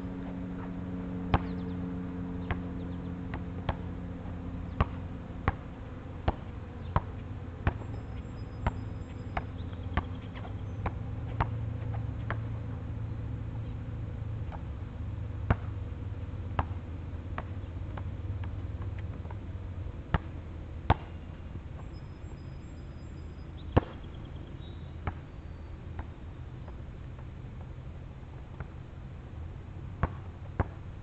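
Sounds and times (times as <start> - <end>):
steady low rumble: 0.0 - 24.4
basketball bouncing on asphalt: 1.2 - 1.7, 2.4 - 4.0, 4.6 - 13.2, 14.4 - 19.4, 20.1 - 21.2, 21.8 - 27.8, 30.0 - 30.9.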